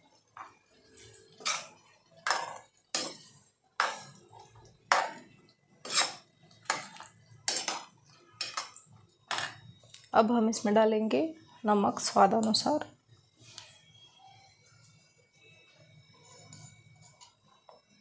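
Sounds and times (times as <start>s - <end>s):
ladle scraping a pan: 1.1s - 4.2s, 5.8s - 8.7s.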